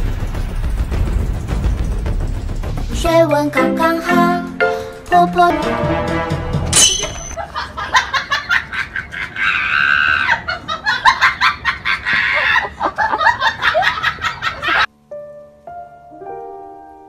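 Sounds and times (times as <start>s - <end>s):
person laughing: 7.4s - 14.9s.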